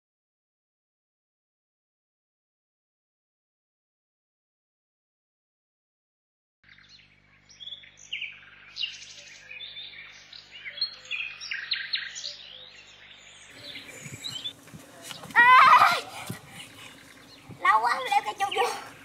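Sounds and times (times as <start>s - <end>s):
small birds chirping: 6.6s - 19.0s
steady outdoor hiss: 6.7s - 19.0s.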